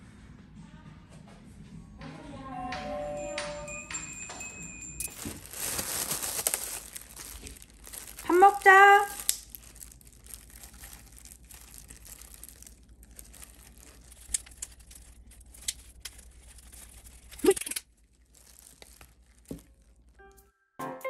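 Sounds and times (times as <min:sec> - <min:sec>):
light music: 0:00.0 - 0:06.2, 0:20.2 - 0:21.0
plastic crinkling and rustling: 0:05.0 - 0:20.2
sharp plastic crackles: 0:05.0 - 0:20.2.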